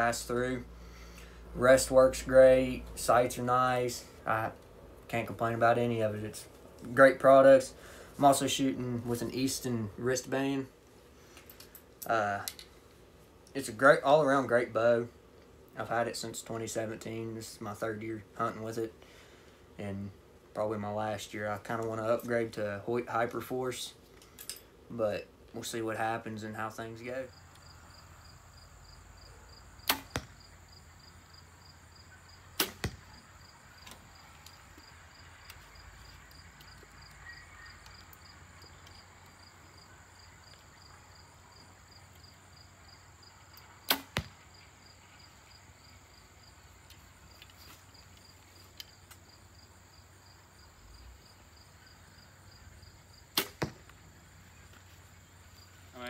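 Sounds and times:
arrow hitting target: 29.8s - 30.4s, 32.6s - 33.2s, 43.8s - 44.4s, 53.3s - 53.9s
bow string slap: 29.8s - 30.4s, 32.6s - 33.0s, 43.9s - 44.3s, 53.4s - 53.8s.

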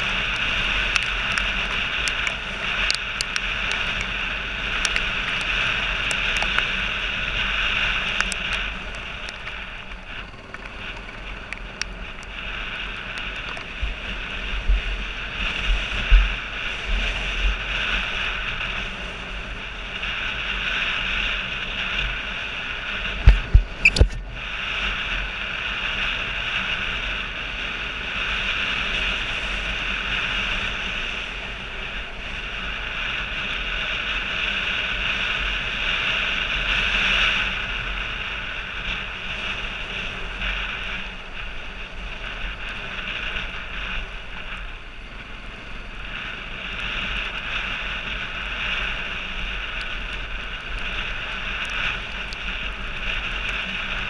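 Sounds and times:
motorcycle engine running: 0.0s - 24.2s
wind rush: 0.0s - 54.0s.

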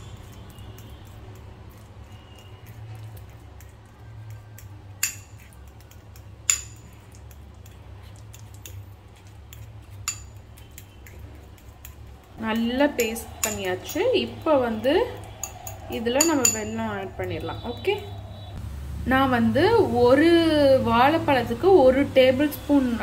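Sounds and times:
fork clinking on bowl: 0.0s - 17.4s
fork mashing banana: 0.0s - 18.4s.

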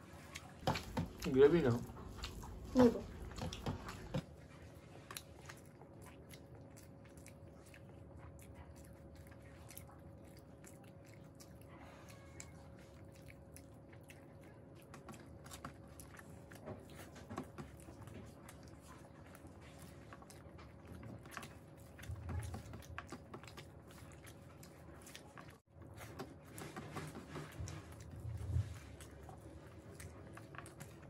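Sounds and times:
people chewing: 0.0s - 31.0s
fingers mixing food on steel plates: 0.1s - 4.3s.

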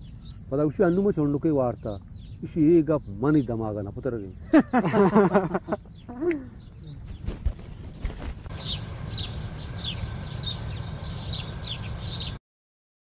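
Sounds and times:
bird chirping: 0.0s - 12.4s
low outdoor rumble: 0.0s - 12.4s.

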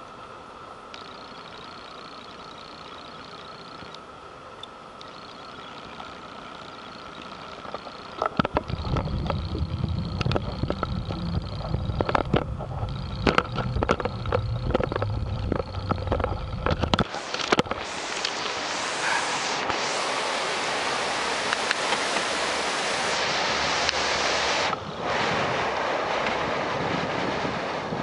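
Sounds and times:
water rushing over weir: 0.0s - 28.0s
camera handling rumble and clicks: 7.2s - 18.4s.

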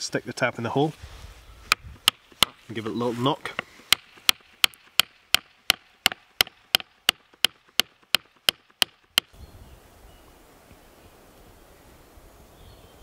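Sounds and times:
hammer knocking wooden tap: 1.7s - 2.6s, 3.5s - 9.3s.

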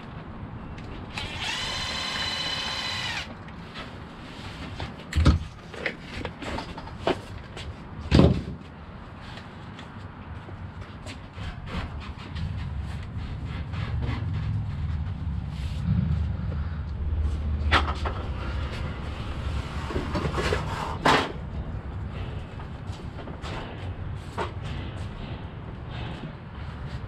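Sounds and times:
power screwdriver whirring: 1.1s - 3.3s.

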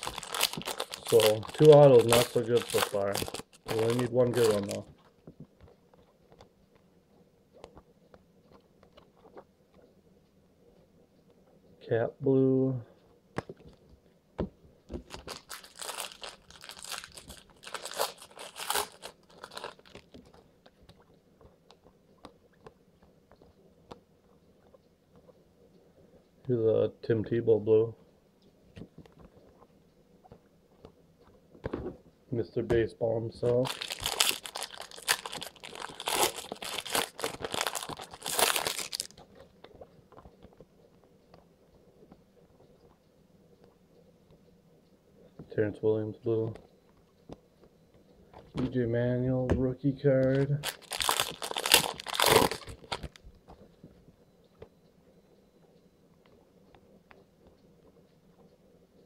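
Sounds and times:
foil wrapper crinkling: 0.0s - 4.9s, 14.9s - 20.5s, 33.5s - 39.3s, 50.3s - 53.2s.

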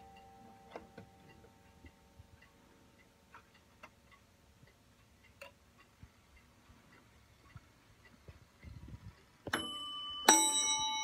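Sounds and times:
clock ticking: 0.0s - 11.0s
chime note ringing: 9.6s - 11.0s.

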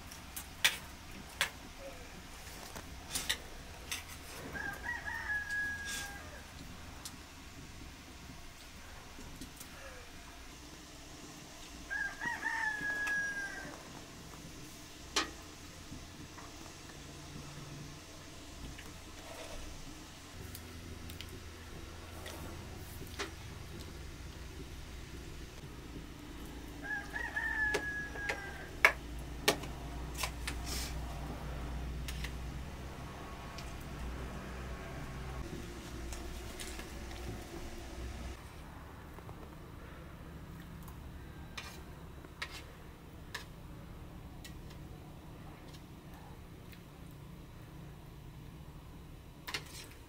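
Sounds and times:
rooster crowing: 4.3s - 6.5s, 11.8s - 14.0s, 26.7s - 29.0s.

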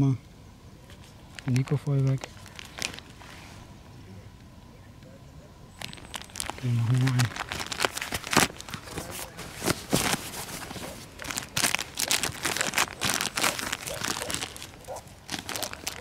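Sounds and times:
plastic bag crinkling: 1.3s - 3.2s, 5.8s - 16.0s.

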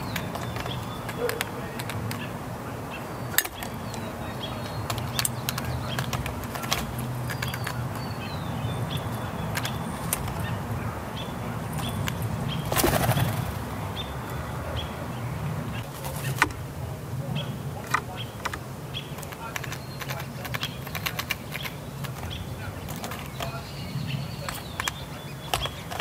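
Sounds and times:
peanut shells rattling on metal: 0.0s - 2.2s, 4.6s - 8.2s
bird wingbeats whoosh: 12.6s - 13.6s.

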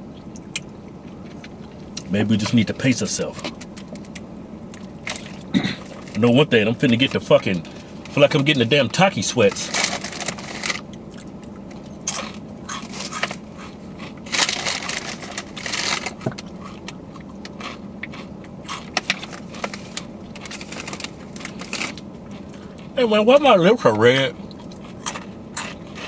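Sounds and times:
chip bag rustling: 9.3s - 10.8s, 12.1s - 16.8s, 17.6s - 22.0s
chips being chewed: 9.5s - 23.0s, 24.5s - 26.0s.

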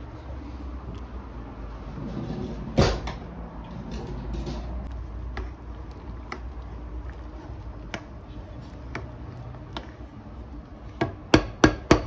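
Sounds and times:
wooden spoon knocking on pan: 11.0s - 12.0s.

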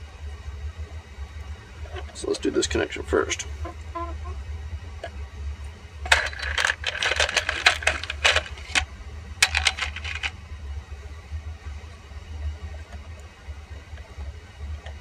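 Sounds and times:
plastic wire connectors clattering: 6.1s - 10.3s.

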